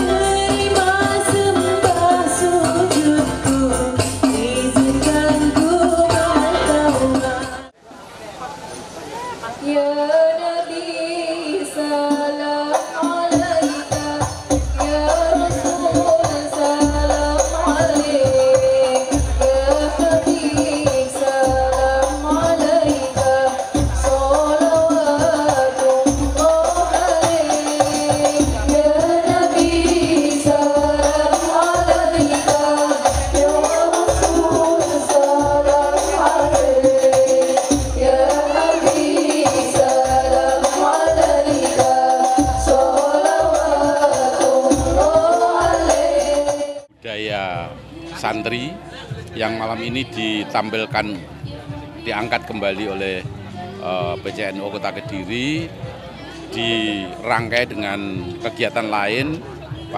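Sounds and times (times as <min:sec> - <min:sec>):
frame drums with jingles: 0:00.0 - 0:07.6, 0:12.8 - 0:46.8
group singing devotional song: 0:00.0 - 0:07.8, 0:09.6 - 0:46.9.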